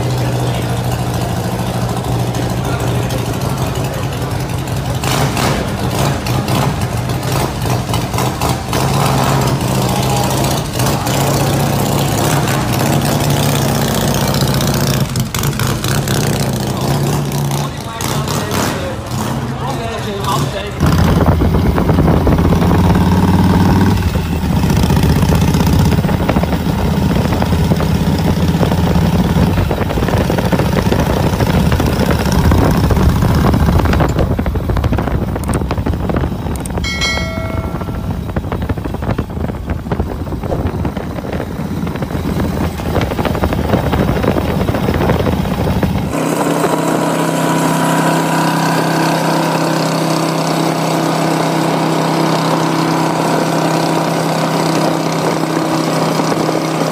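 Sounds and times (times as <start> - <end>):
motorcycle engine running: 0.0 - 56.9
motorcycle engines droning: 0.0 - 56.9
short electronic chime: 36.8 - 38.6.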